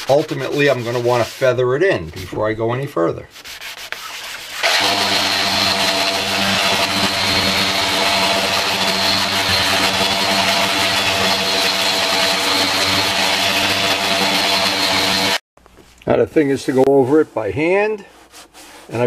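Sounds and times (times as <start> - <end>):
electric sanders droning: 4.6 - 15.4.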